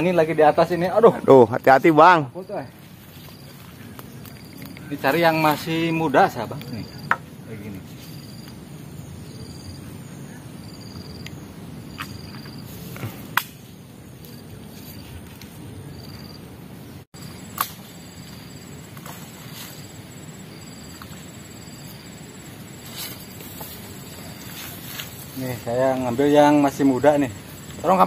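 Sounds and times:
insects chirping in pulses: 0:00.0 - 0:28.0
sharp snaps: 0:13.0 - 0:13.7
low steady rustle: 0:17.8 - 0:28.0.

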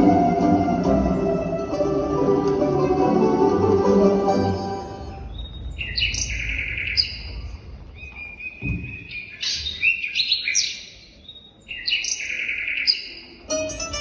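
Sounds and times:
recorded birdsong over loudspeakers: 0:05.2 - 0:13.5.

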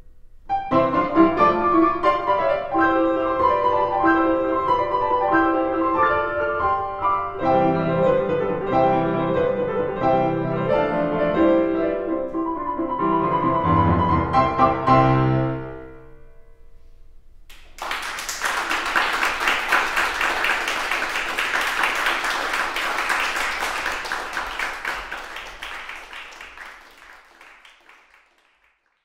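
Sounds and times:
piano chord: 0:00.0 - 0:17.2
audience applause: 0:17.5 - 0:29.0.

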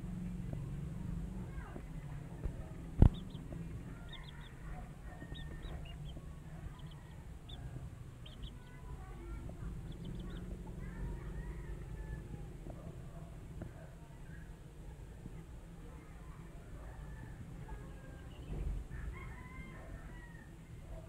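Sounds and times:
chicks peeping: 0:02.0 - 0:12.8, 0:17.6 - 0:20.0.

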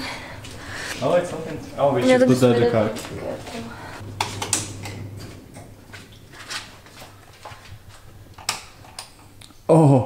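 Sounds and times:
low hum: 0:03.7 - 0:06.6.

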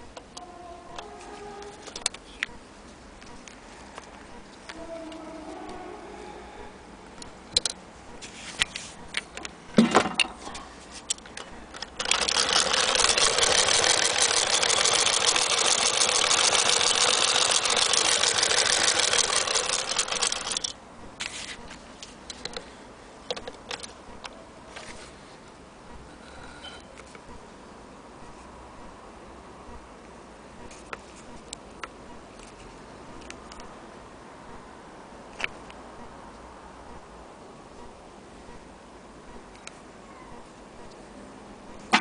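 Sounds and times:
metal parts clicking: 0:11.1 - 0:20.8
sewing machine clatter: 0:11.8 - 0:20.7.

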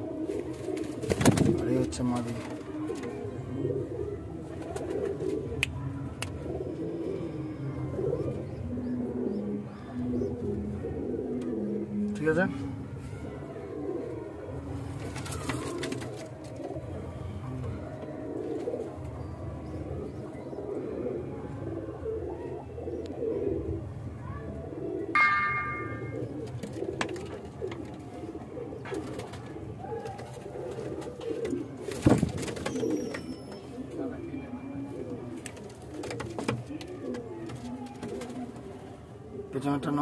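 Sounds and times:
pigeons cooing: 0:00.0 - 0:40.0
brief high-pitched tone: 0:25.2 - 0:26.3.

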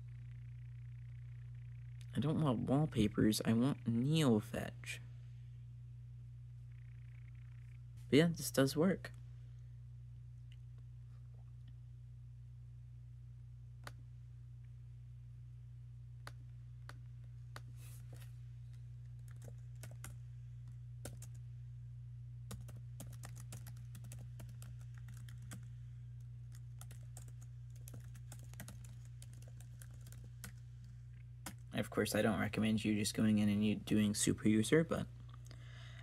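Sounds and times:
steady low hum: 0:00.0 - 0:36.0
laptop keyboard typing: 0:19.1 - 0:20.2, 0:21.0 - 0:21.4, 0:22.5 - 0:25.7, 0:26.4 - 0:30.6, 0:31.4 - 0:31.7.

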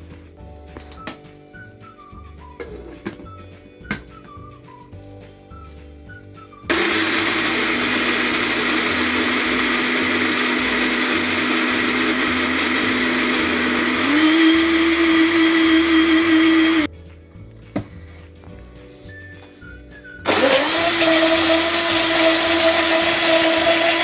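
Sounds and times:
blender motor grinding: 0:06.7 - 0:16.9, 0:20.2 - 0:24.0.

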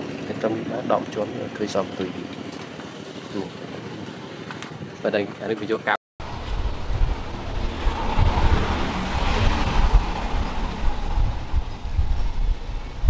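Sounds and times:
wind buffeting microphone: 0:06.2 - 0:13.0.

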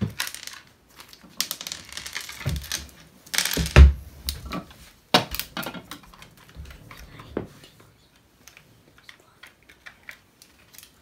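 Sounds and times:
plastic toy pieces clicking on floor: 0:00.0 - 0:03.9.

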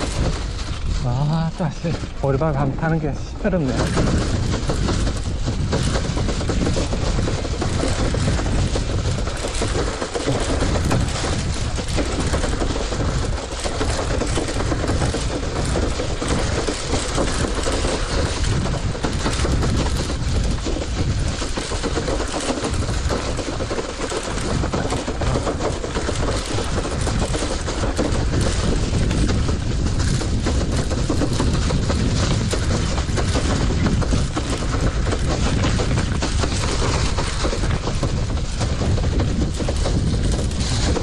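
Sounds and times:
bicycle basket and frame clattering: 0:00.0 - 0:41.0
person speaking: 0:01.0 - 0:04.0.

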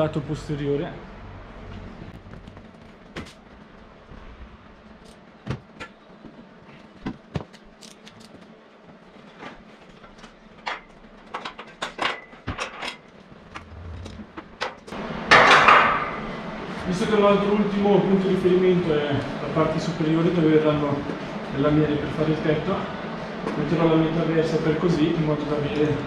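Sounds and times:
loud rushing noise: 0:13.6 - 0:16.7.

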